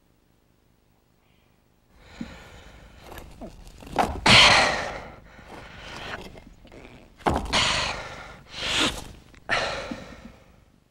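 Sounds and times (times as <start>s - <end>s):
man breathing heavily: 1.9s - 3.4s, 4.2s - 6.6s, 7.4s - 10.7s.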